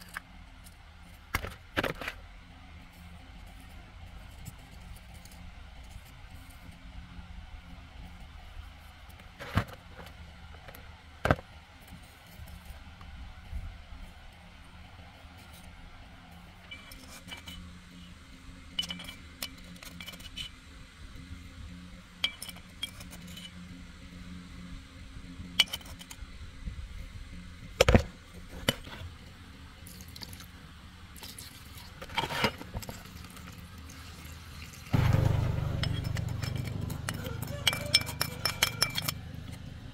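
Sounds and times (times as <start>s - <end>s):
metal tools clinking: 16.7s - 17.6s, 18.8s - 20.4s, 22.2s - 23.5s, 35.0s - 39.2s
loud low noise: 35.0s - 37.8s.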